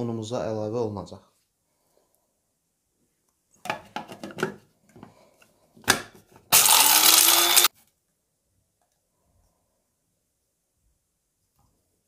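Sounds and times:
electric blade grinder running: 6.5 - 7.7.

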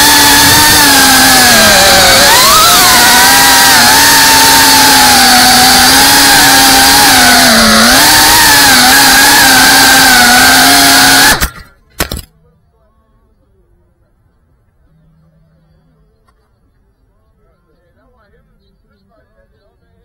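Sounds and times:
drone motors buzzing: 0.0 - 11.7.

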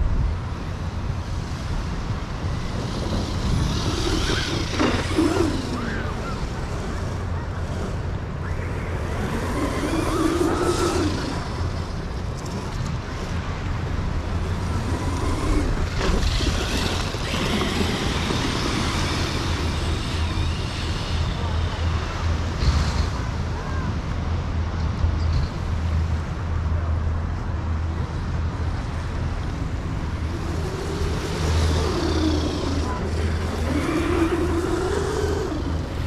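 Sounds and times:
wind rumble on microphone: 0.0 - 36.0
electric motor whining: 2.4 - 12.6, 14.3 - 21.9, 30.0 - 36.0.

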